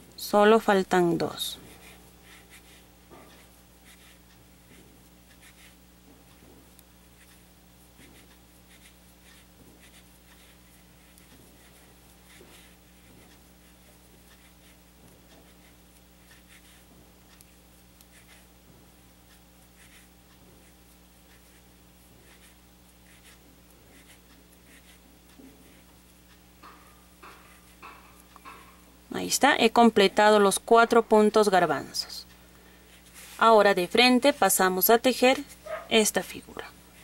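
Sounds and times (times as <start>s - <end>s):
low steady hum: 0.0s - 37.0s
crochet hook rustling yarn: 0.4s - 4.3s, 8.1s - 14.8s, 19.8s - 20.1s, 20.9s - 25.0s, 33.0s - 34.5s.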